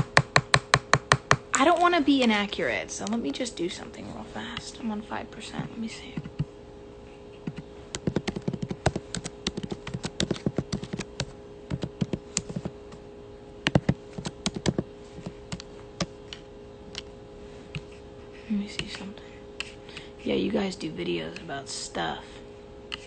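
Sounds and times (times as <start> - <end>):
faint steady hum: 0.0 - 23.0
fingers tapping on touchscreen: 7.4 - 12.7, 13.7 - 16.4.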